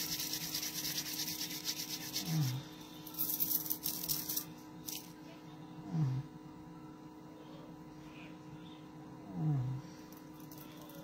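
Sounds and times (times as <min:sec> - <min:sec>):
palms rubbing together: 0:00.0 - 0:02.6.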